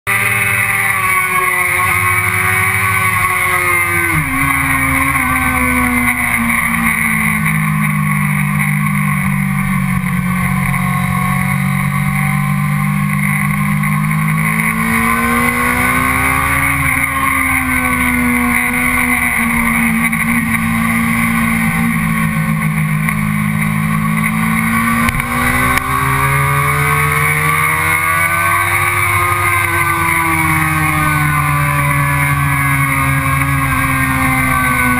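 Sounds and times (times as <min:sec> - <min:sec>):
motorcycle engine revving at speed: 0:00.1 - 0:34.9.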